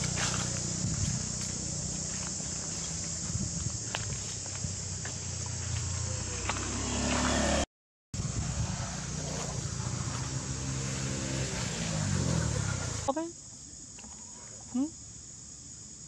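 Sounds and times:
vehicle engine humming: 0.0s - 13.1s
high insect drone: 0.0s - 16.0s.

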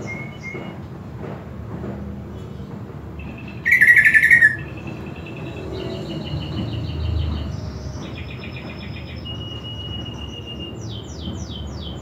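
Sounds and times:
bird singing trills: 0.0s - 0.8s, 3.2s - 12.0s.

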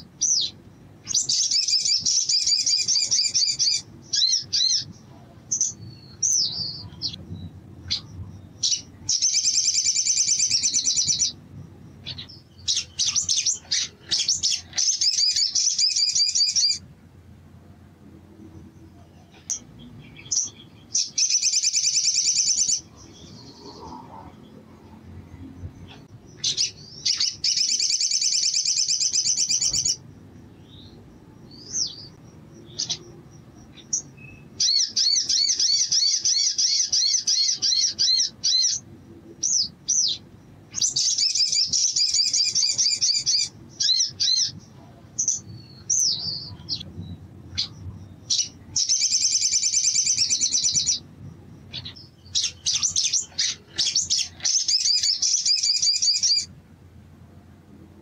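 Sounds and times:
bird trilling: 0.0s - 7.2s, 7.8s - 11.4s, 12.0s - 16.9s, 19.4s - 24.4s, 25.9s - 30.0s, 30.6s - 46.8s, 47.5s - 51.1s, 51.7s - 56.5s
bird chirps: 0.0s - 16.9s, 18.4s - 56.6s.

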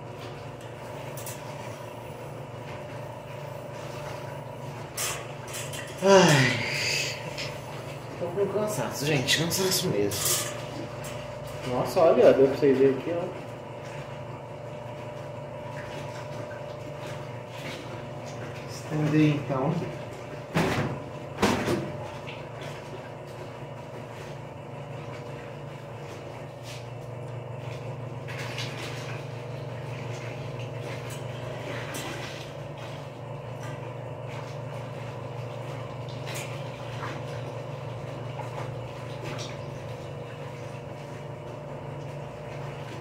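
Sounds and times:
low machine hum: 0.0s - 43.0s.

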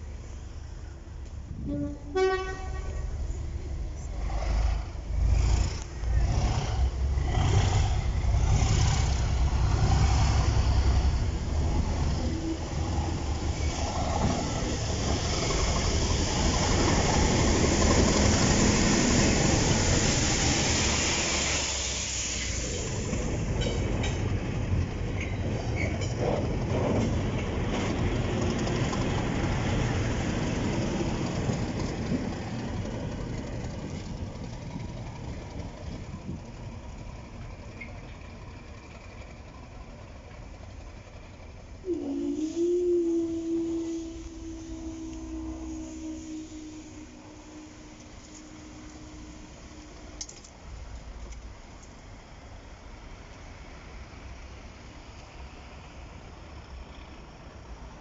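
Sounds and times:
diesel locomotive engines: 0.0s - 58.0s
train rushing past: 0.0s - 58.0s
train horn note: 1.6s - 3.2s, 41.8s - 50.2s.

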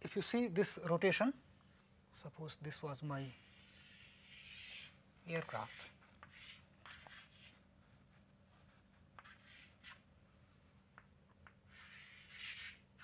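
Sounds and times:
chalk scratching on chalkboard: 3.2s - 10.1s, 11.4s - 13.0s.

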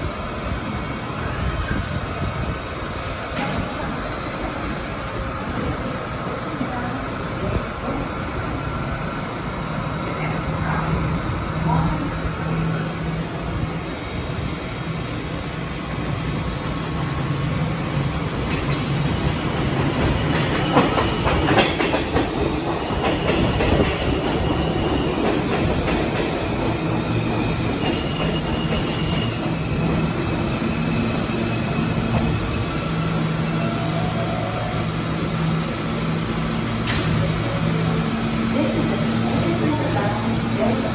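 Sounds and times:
train wheels clacking over rail joints: 19.8s - 29.6s
brake and wheel squeal: 32.6s - 35.2s.

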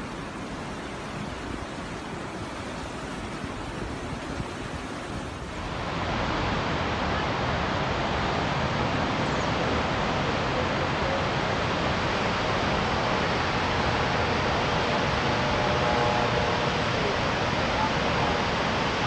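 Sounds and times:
flowing river water: 0.0s - 19.0s
whitewater rapids rushing: 0.0s - 19.0s.

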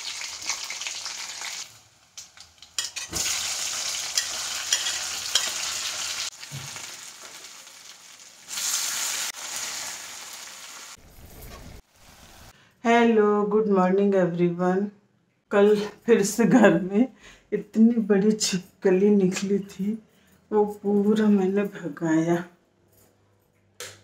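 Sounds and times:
food sizzling in hot oil: 0.0s - 12.5s.

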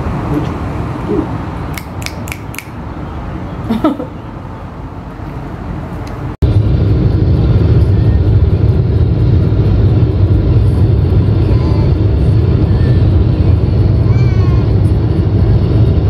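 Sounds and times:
car road noise rumble: 0.0s - 2.0s, 2.7s - 16.0s
short rising vocal sound: 0.2s - 2.8s.

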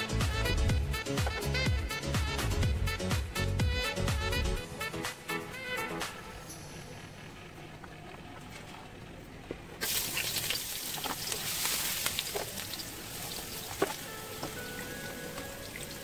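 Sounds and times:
oil crackles and pops: 7.4s - 16.0s
ginger sizzling in hot oil: 9.8s - 16.0s.

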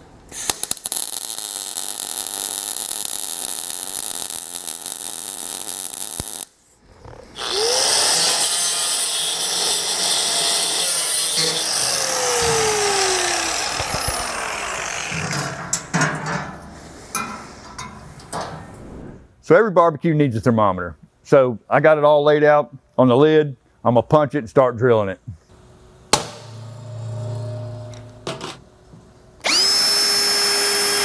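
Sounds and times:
welder arcing: 0.3s - 6.6s, 7.4s - 16.1s, 29.4s - 31.0s
angle grinder cutting metal: 7.3s - 16.0s, 29.4s - 31.0s.

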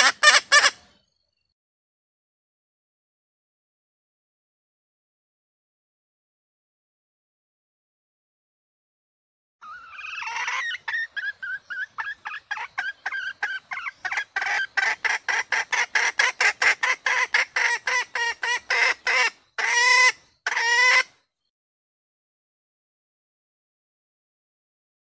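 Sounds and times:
hen calling with clucks: 0.0s - 0.8s, 9.6s - 21.2s.

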